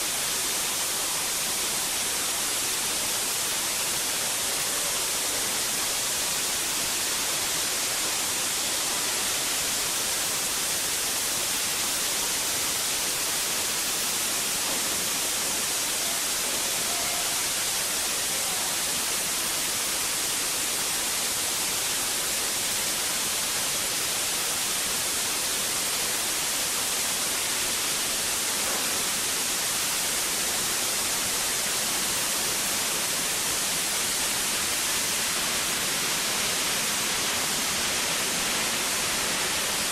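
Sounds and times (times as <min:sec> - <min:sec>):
fire hissing loudly: 0:00.0 - 0:39.9.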